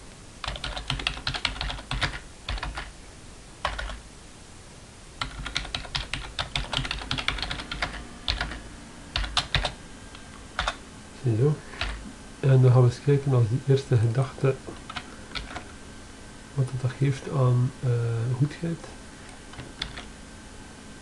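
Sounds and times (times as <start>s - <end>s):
typing on computer keyboard: 0.4s - 2.9s, 3.6s - 4.0s, 5.2s - 8.6s, 9.2s - 9.8s, 10.6s - 10.8s, 11.8s - 12.0s, 14.9s - 15.7s, 19.5s - 20.1s.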